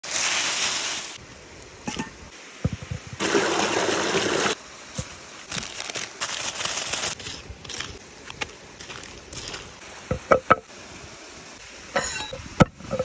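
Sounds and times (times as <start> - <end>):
small waterfall rushing: 2.3 - 5.6, 8.0 - 12.7
aluminium foil crinkling: 5.5 - 9.8.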